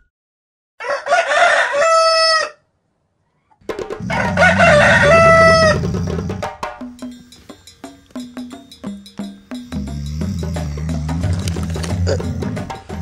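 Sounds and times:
rooster crowing: 0.8s - 2.6s, 4.0s - 6.5s.

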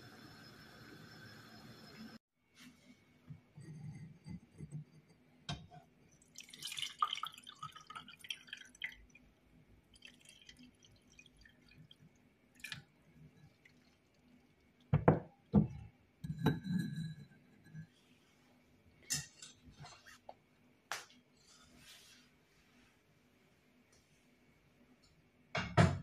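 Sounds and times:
liquid trickling into cup: 6.2s - 9.3s, 9.9s - 14.7s.

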